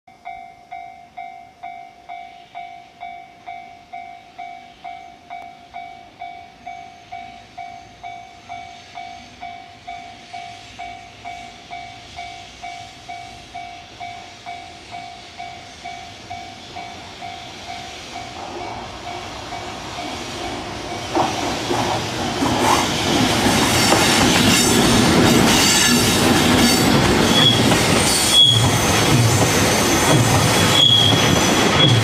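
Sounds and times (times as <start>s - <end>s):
level crossing warning bell: 0.1s - 21.1s
freight train approaching: 0.1s - 32.0s.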